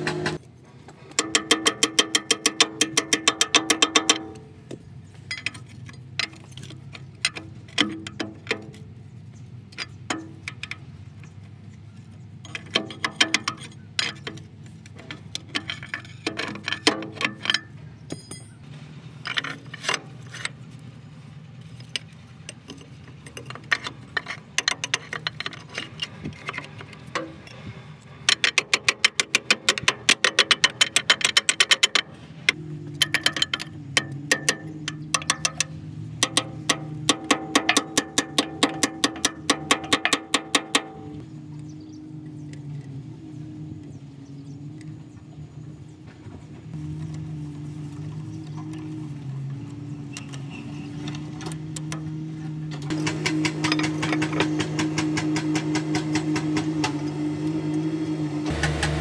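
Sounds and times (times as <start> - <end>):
hand tools clinking on metal: 15.0 - 18.6
fast metallic clicks: 28.2 - 41.2.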